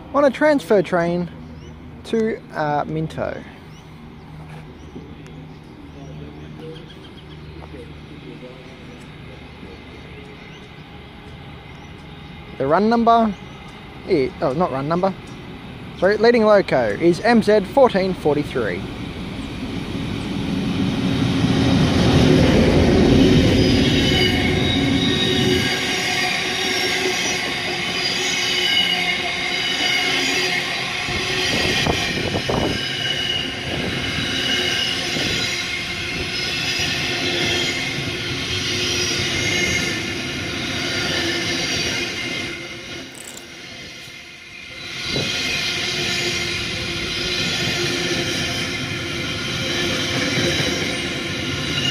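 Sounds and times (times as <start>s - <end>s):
locomotive low rumble: 1.2s - 26.0s
train wheels squealing: 23.0s - 51.9s.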